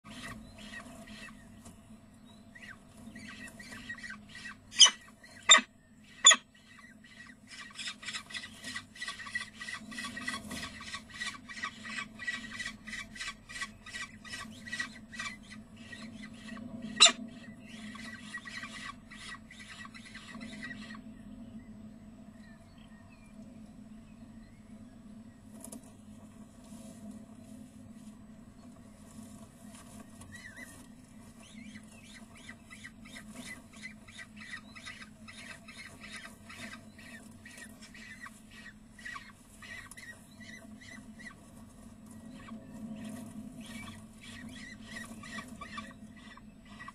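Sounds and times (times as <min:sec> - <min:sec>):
falcon chicks calling: 0:02.5 - 0:21.0, 0:31.5 - 0:41.4, 0:42.2 - 0:46.9.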